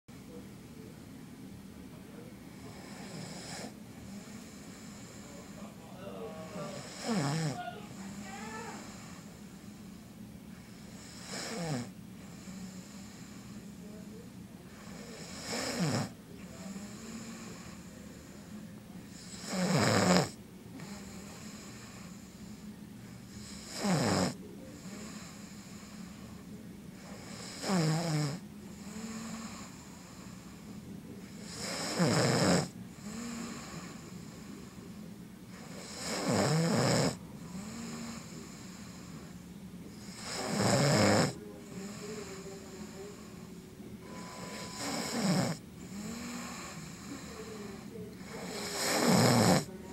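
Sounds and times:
man snoring: 2.6 - 5.7, 6.4 - 9.3, 10.9 - 13.6, 14.8 - 18.5, 19.1 - 22.6, 23.3 - 26.4, 27.0 - 34.9, 35.5 - 39.3, 40.0 - 43.5, 44.1 - 49.8.

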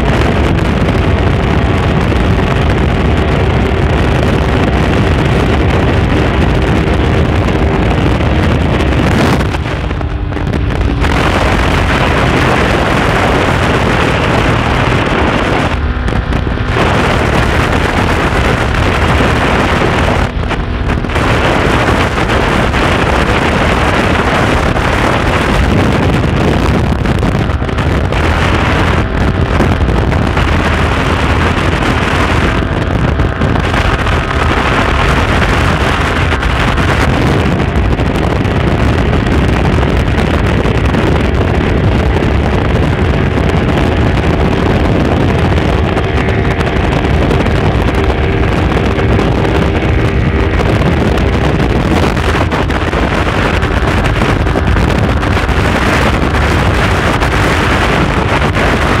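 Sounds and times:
motorcycle engine at high speed: 0.0 - 59.0
wind buffeting microphone: 0.0 - 59.0.

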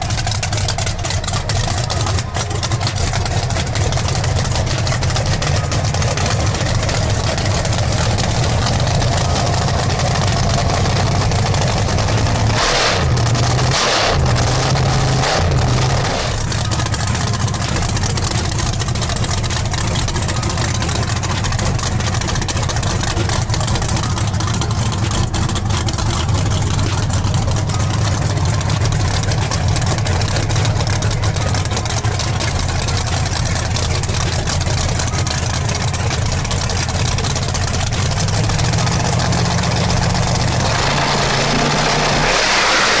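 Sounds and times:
race engine idling: 0.0 - 43.0.

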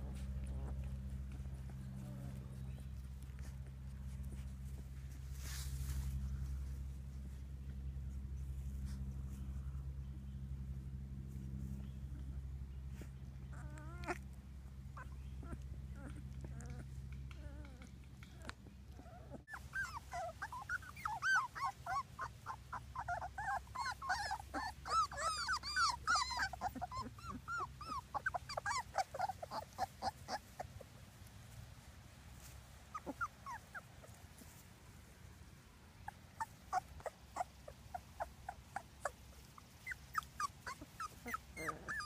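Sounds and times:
steady low hum: 0.0 - 42.0
puppies whimpering and squeaking: 13.0 - 31.5, 32.4 - 34.7, 36.0 - 42.0.

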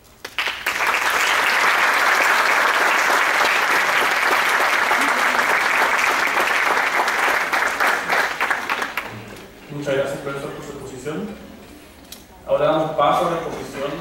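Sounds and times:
audience applauding: 0.2 - 9.4.

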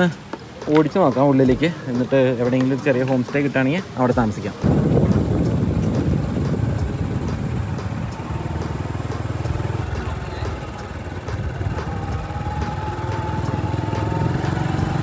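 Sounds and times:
motorbike engine running: 4.6 - 15.0.

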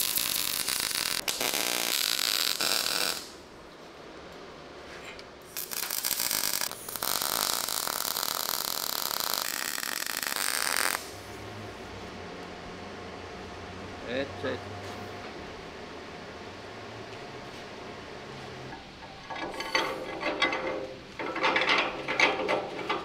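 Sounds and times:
welding arc crackling: 0.0 - 3.4, 5.5 - 11.4.

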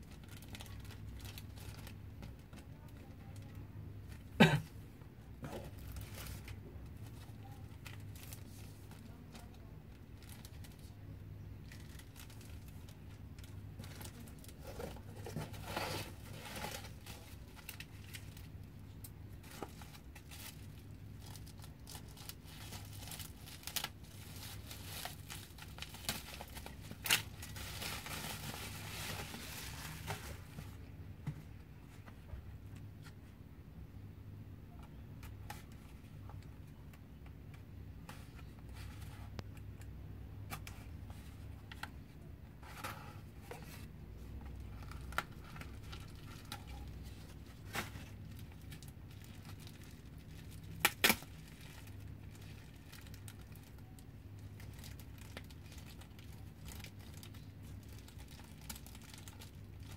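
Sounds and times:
bubble wrap crinkling: 0.0 - 4.2, 5.4 - 30.9, 42.6 - 59.9
bubble wrap clicks: 50.5 - 53.8.

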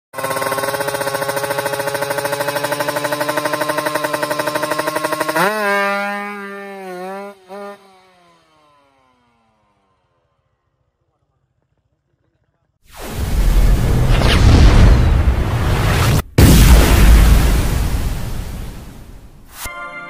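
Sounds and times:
motorcycle engine revving: 0.1 - 12.1.

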